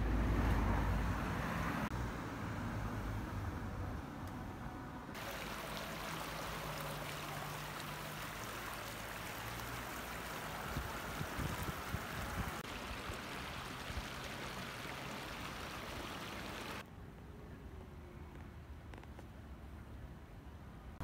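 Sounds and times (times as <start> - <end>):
river water rippling over stones: 5.2 - 16.8.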